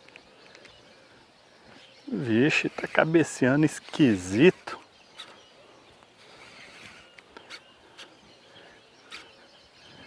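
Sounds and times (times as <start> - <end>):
distant birds calling: 0.0 - 10.0.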